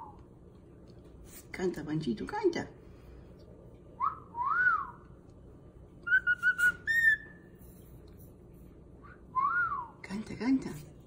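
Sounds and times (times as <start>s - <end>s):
cockatiel whistling: 6.0s - 7.5s.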